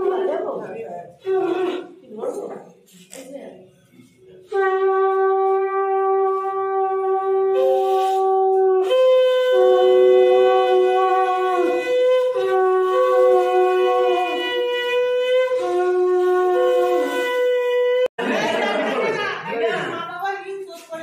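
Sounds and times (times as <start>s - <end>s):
conch shell blasts: 1.2s - 2.1s, 4.5s - 18.1s.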